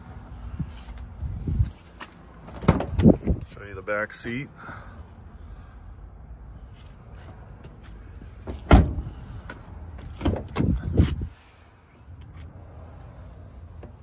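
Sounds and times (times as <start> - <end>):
car door bang: 2.5 - 3.2, 8.5 - 9.2
car door latch clunks and clicks: 2.5 - 3.2, 8.5 - 9.1, 10.0 - 10.8.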